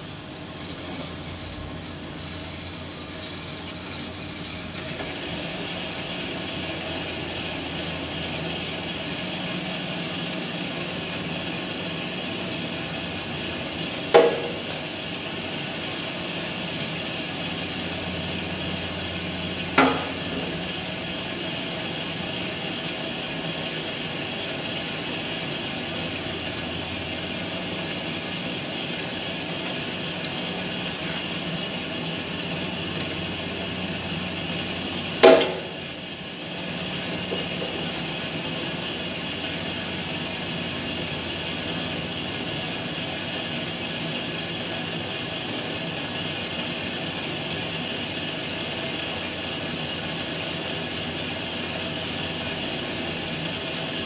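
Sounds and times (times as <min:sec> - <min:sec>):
band saw running: 0:00.0 - 0:15.9, 0:16.7 - 0:27.5, 0:30.2 - 0:44.8
sharp knocks: 0:19.8 - 0:20.5.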